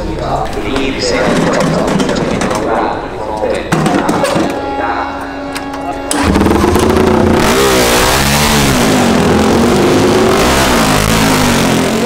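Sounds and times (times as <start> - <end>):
motorcycle engine revving: 5.7 - 12.0.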